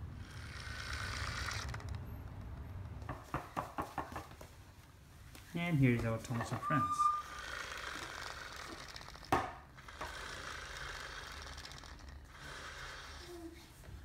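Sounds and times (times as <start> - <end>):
toy pull-string mechanism whirring: 0.1 - 2.6, 7.0 - 13.6.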